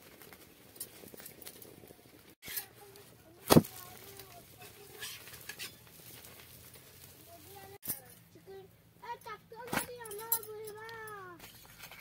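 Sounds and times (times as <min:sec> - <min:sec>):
metal spatula scraping iron pan: 0:02.4 - 0:02.8, 0:04.6 - 0:06.0.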